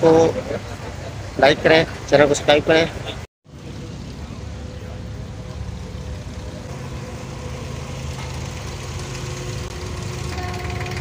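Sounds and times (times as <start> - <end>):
boat diesel engine idling: 0.0 - 11.0.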